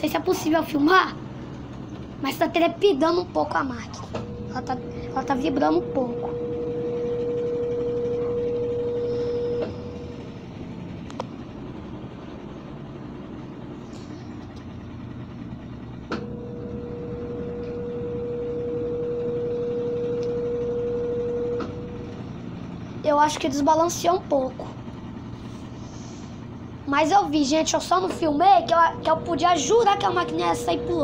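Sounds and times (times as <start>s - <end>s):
washing machine spinning: 0.0s - 31.0s.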